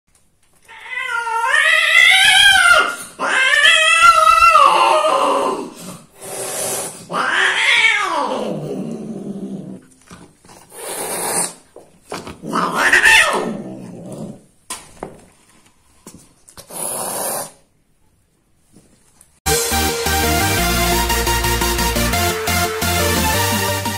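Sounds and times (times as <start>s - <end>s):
cats caterwauling: 0.6s - 5.8s, 6.6s - 9.8s, 12.4s - 14.4s
cat hissing: 0.8s - 9.8s, 10.6s - 11.7s, 12.4s - 14.4s, 16.6s - 17.7s.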